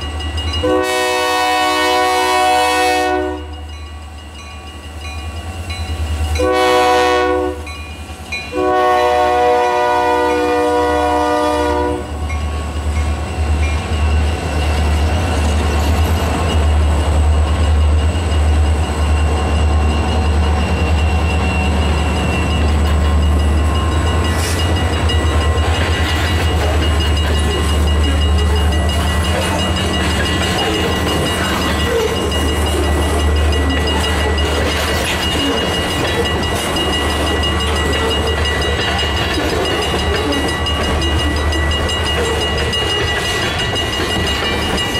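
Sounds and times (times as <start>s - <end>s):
train cars rumbling past: 0.0s - 44.9s
locomotive horn: 0.6s - 3.5s, 6.4s - 7.7s, 8.5s - 12.2s.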